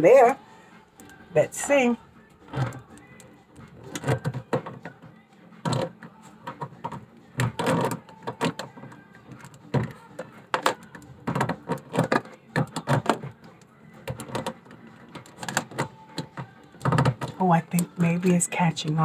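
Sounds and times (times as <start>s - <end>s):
pliers clicking and tapping: 2.7s - 4.8s.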